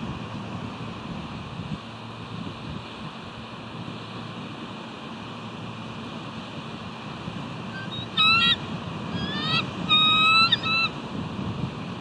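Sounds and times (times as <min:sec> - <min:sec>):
eagle high piping calls: 0:07.7 - 0:11.0.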